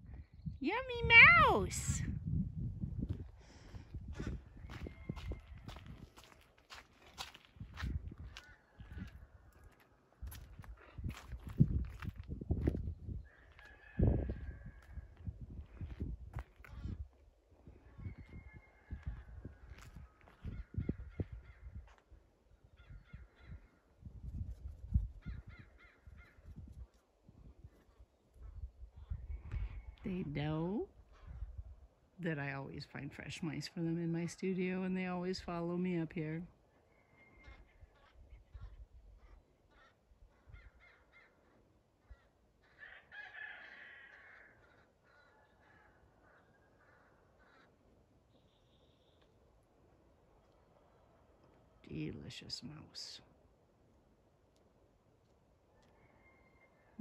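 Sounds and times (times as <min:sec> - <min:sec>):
ravens calling: 0:36.8 - 0:48.0.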